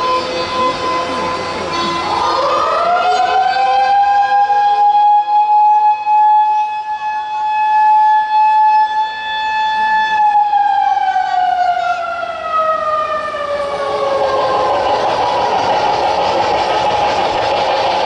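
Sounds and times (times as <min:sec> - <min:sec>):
siren wailing: 0:00.0 - 0:17.7
noisy rumble: 0:12.4 - 0:18.0.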